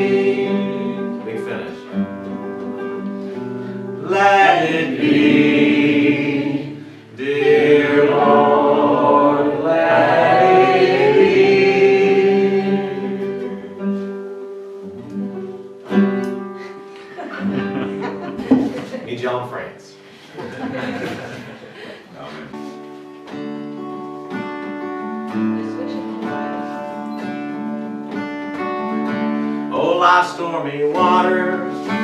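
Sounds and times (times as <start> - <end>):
person singing: 0.0 - 1.3, 4.0 - 13.7, 29.7 - 32.0
acoustic guitar: 0.0 - 32.0.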